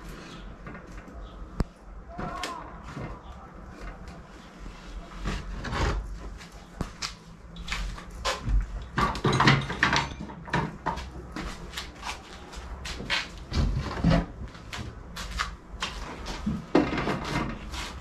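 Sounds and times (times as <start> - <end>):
wooden holders knocking and scraping: 7.7 - 18.0.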